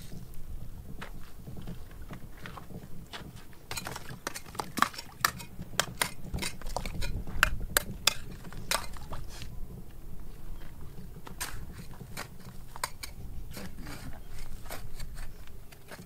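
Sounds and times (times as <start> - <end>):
hard objects clinking: 3.7 - 9.0.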